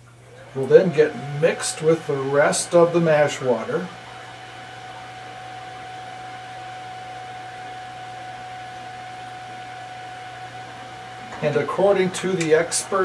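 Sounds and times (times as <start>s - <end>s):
pump humming and whining: 0.0s - 13.0s.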